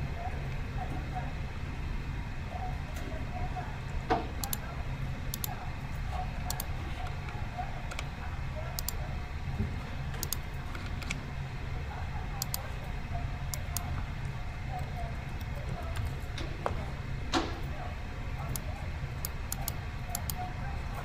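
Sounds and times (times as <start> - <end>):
low room hum: 0.0 - 21.0
mouse and keyboard clicks: 5.3 - 5.6, 6.4 - 7.2, 10.2 - 11.2, 12.4 - 12.6, 18.5 - 20.4.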